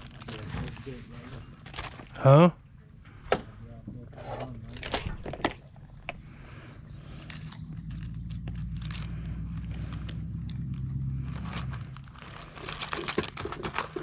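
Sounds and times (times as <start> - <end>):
loud low rumble: 6.2 - 12.6
plastic clicks and crinkling: 12.1 - 14.0.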